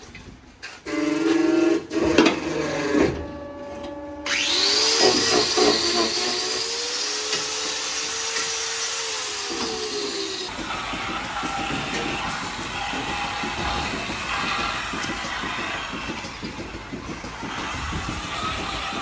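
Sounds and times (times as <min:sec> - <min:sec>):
angle grinder grinding hoof: 0:00.9 - 0:19.0
knocks: 0:10.5 - 0:19.0.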